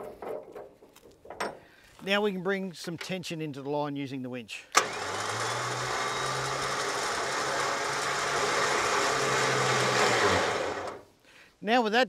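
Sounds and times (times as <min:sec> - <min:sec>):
electric winch motor humming: 0:04.8 - 0:11.1.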